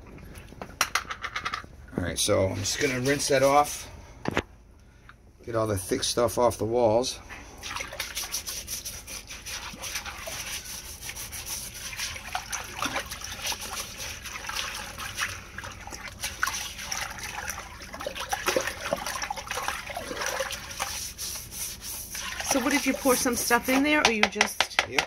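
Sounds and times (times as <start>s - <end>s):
brush scrubbing in water: 2.5s - 3.9s, 7.6s - 24.4s.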